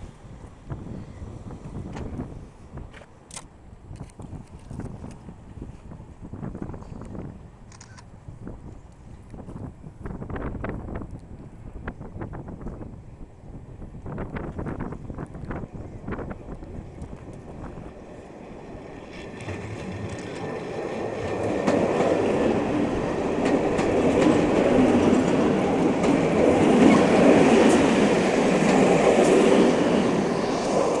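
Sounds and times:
electric train running past: 0:08.4 - 0:31.0
train wheels clicking over rail joints: 0:19.0 - 0:31.0.

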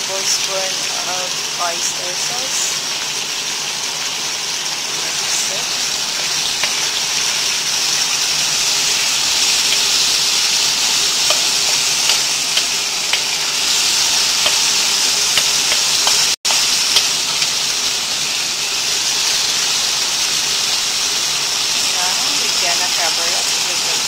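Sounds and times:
food sizzling in frying pan: 0:00.0 - 0:24.0
spatula scraping and tapping pan: 0:06.2 - 0:07.0, 0:10.8 - 0:13.4, 0:14.0 - 0:17.5.

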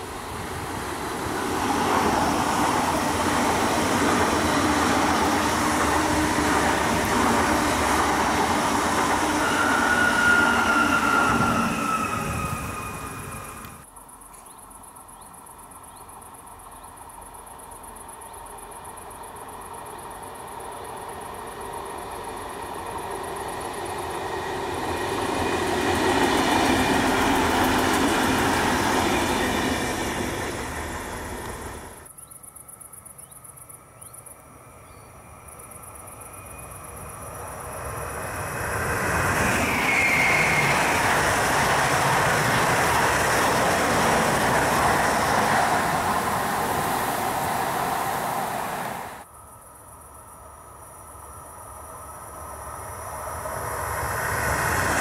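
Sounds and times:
diesel train passing: 0:00.0 - 0:14.0, 0:15.6 - 0:32.1, 0:34.4 - 0:55.0
electric train wheels on rail: 0:00.0 - 0:32.2, 0:33.2 - 0:55.0
high wheel squeal: 0:08.9 - 0:13.8, 0:38.8 - 0:43.2.

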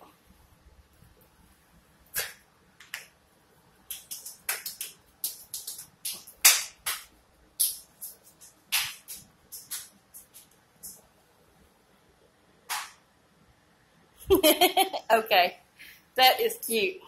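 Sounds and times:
hands clapping: 0:03.9 - 0:11.0, 0:12.7 - 0:13.0.

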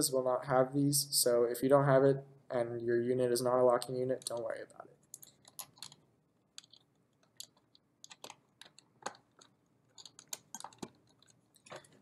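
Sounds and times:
plastic connectors clicking: 0:06.6 - 0:11.9.

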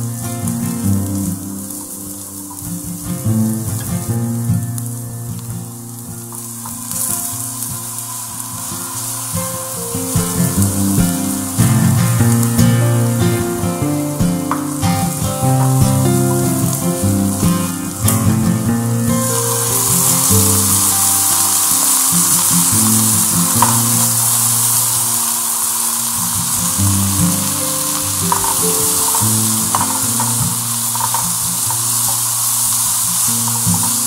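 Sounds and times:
hot oil sizzling: 0:00.0 - 0:34.0
soft background music: 0:00.0 - 0:34.0
water poured into pan: 0:19.2 - 0:34.0.

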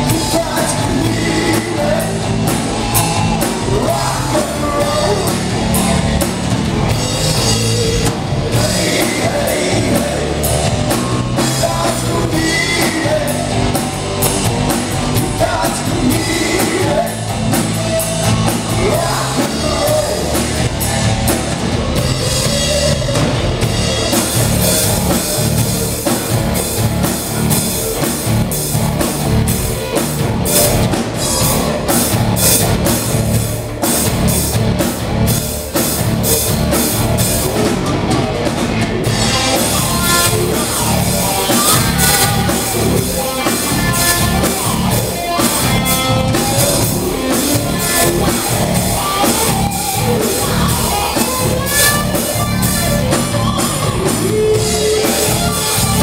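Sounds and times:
person singing: 0:00.0 - 0:05.8, 0:07.6 - 0:13.9, 0:15.0 - 0:21.4
bass guitar: 0:00.0 - 0:56.0
drum kit: 0:00.0 - 0:56.0
electric guitar: 0:00.0 - 0:56.0.

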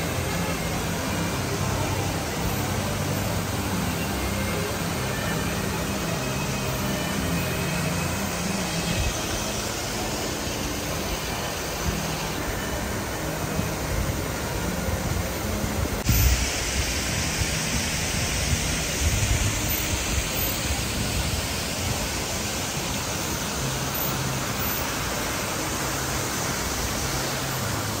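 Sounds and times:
steady rushing noise: 0:00.0 - 0:28.0.

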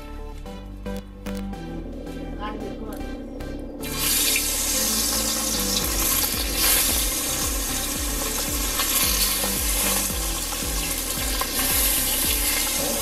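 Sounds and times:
fish sizzling in hot oil: 0:03.8 - 0:13.0.

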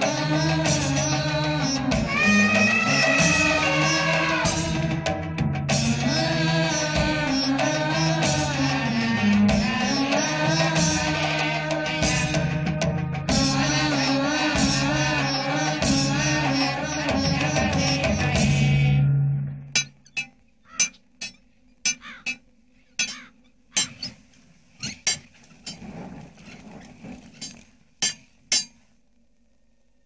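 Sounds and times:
film music: 0:00.0 - 0:20.0
hammers striking metal: 0:19.8 - 0:24.2, 0:28.0 - 0:28.8.

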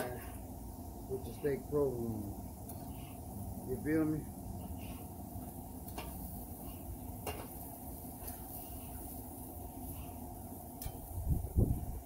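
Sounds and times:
steak sizzling on griddle: 0:00.0 - 0:12.0
metal utensils clicking on griddle: 0:05.8 - 0:09.1, 0:10.7 - 0:11.2.

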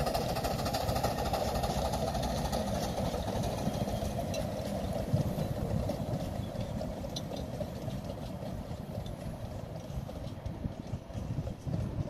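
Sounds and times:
steam train rumbling: 0:00.0 - 0:12.0.

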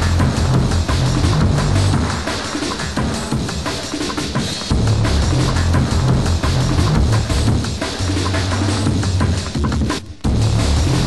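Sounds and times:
heavy bass line: 0:00.0 - 0:02.2, 0:04.7 - 0:09.5, 0:10.3 - 0:11.0
breakbeat drums: 0:00.0 - 0:11.0.

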